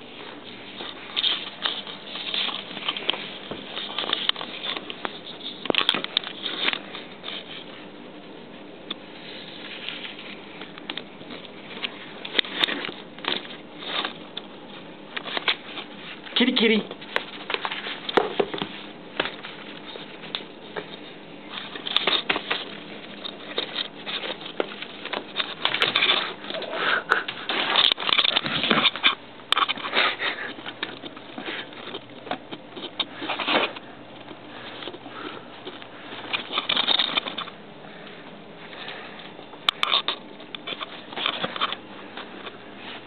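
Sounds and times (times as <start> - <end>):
magazines rustling: 0.0 - 43.0
cats scrabbling on tile floor: 9.2 - 43.0.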